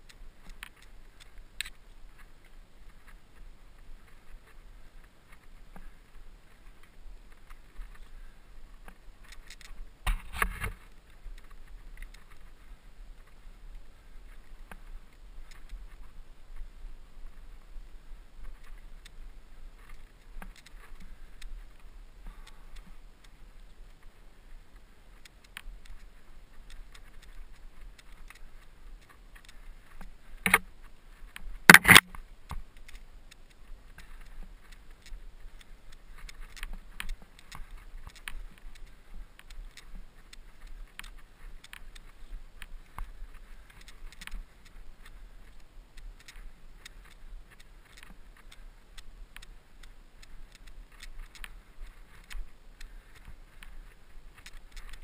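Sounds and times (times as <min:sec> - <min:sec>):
mountain bike rattling and clicking: 0:31.6 - 0:55.0.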